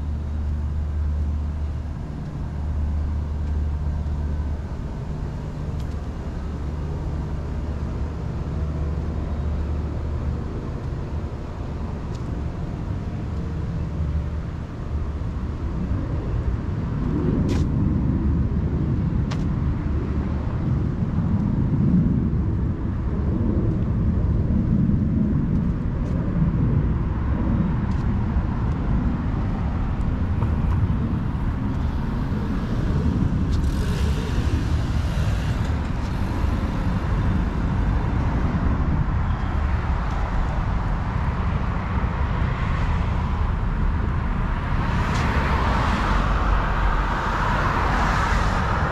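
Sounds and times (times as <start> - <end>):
traffic rumble: 0.0 - 48.9
vehicle passing: 30.1 - 48.9.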